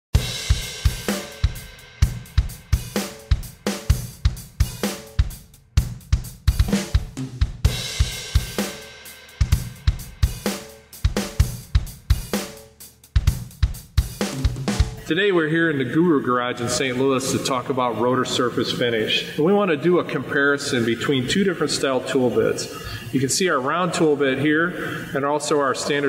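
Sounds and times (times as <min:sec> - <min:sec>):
drum kit beat: 0:00.1 - 0:15.2.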